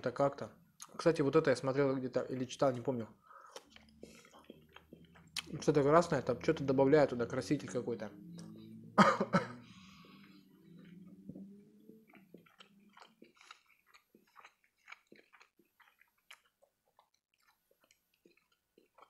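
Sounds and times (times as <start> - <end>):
wet chewing with mouth clicks: 3.2 - 6.6, 9.8 - 19.0
biting into food: 12.0 - 19.0.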